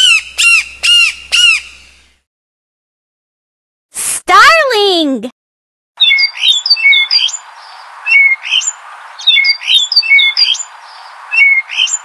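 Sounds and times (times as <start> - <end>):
starling chirping and whistling: 0.0 - 1.9, 6.0 - 12.0.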